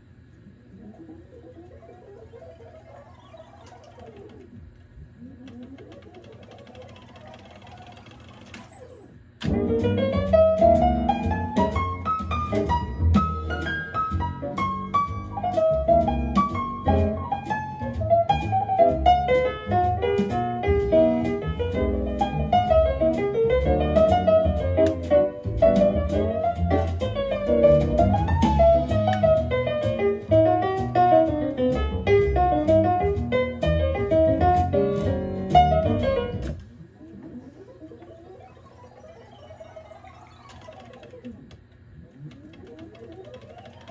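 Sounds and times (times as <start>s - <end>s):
tape reels whirring: 0.0s - 25.0s, 32.6s - 43.9s
piano music with bass line: 9.5s - 36.6s.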